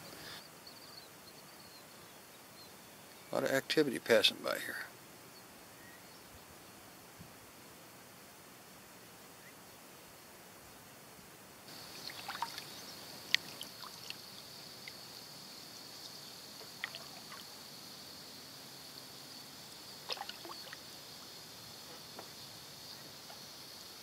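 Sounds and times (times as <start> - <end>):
steady high hiss: 0.0 - 24.0
water splashing off paddle: 11.8 - 14.2, 16.6 - 17.5, 20.0 - 20.8.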